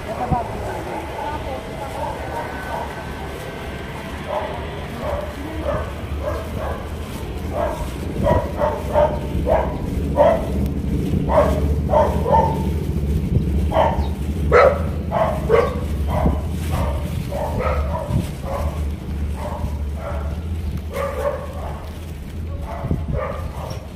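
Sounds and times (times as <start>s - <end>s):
bicycle rumble: 0.0s - 23.9s
small dog yapping: 4.2s - 10.6s.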